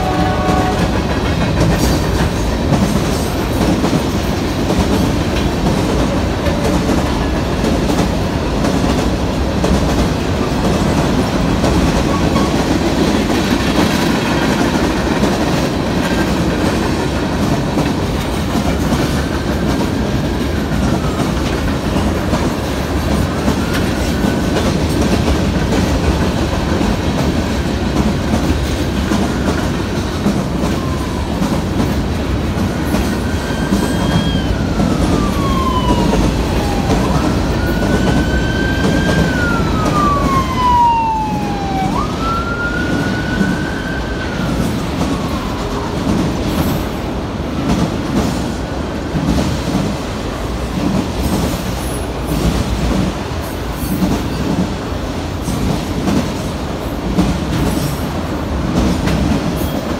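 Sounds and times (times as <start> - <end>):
clickety-clack over rail joints: 0.0 - 59.9
freight train wheels rumbling: 0.0 - 59.9
faint high squeals: 33.2 - 34.7.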